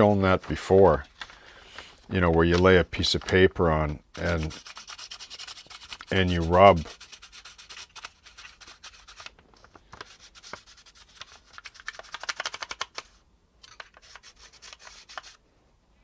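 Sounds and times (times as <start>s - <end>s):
pencil scratching on paper: 4.2s - 9.3s.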